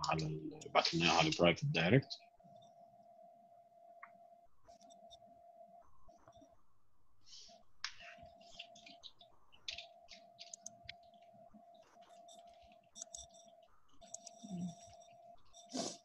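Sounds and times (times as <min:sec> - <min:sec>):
steady faint tone: 0:00.0 - 0:16.0
keyboard typing: 0:09.7 - 0:15.9.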